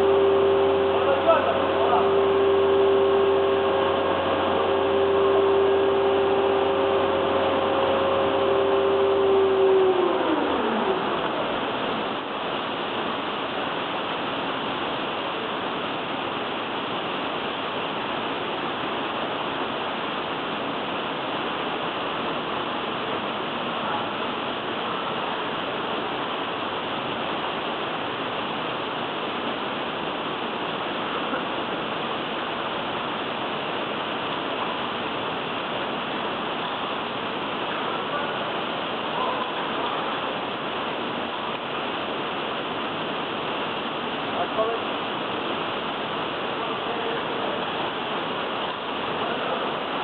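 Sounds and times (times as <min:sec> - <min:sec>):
machine hum winding down: 0:00.0 - 0:13.0.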